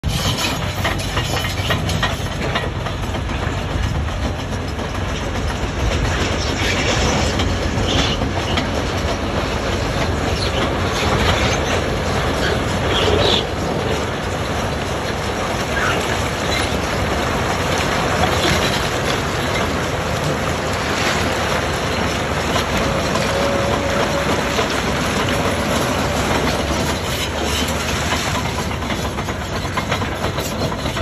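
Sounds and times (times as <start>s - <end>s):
dozer engine running: 0.0s - 31.0s
steel tracks clanking: 0.0s - 31.0s.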